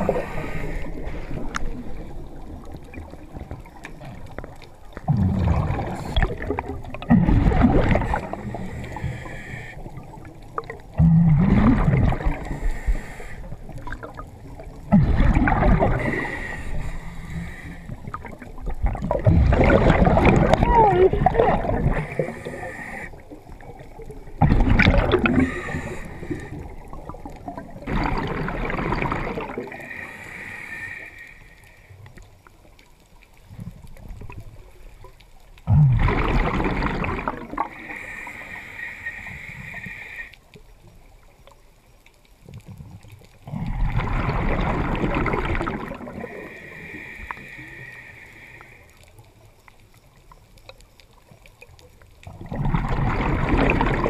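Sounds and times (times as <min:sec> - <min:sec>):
diver inhaling hiss: 0:00.0 - 0:02.2, 0:08.0 - 0:10.0, 0:12.2 - 0:13.8, 0:15.8 - 0:18.3, 0:21.8 - 0:23.6, 0:25.2 - 0:26.9, 0:29.6 - 0:31.9, 0:37.6 - 0:40.4, 0:46.1 - 0:49.0
exhaled bubbles gurgling: 0:00.0 - 0:31.1, 0:33.5 - 0:40.3, 0:42.5 - 0:49.5, 0:51.2 - 0:54.0.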